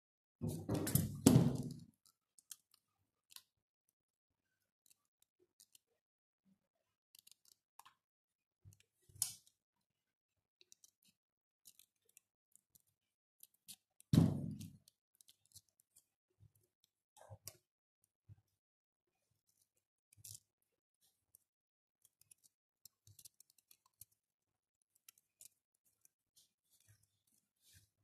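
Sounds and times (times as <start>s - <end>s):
scissors thumping on table: 14.2s - 14.8s.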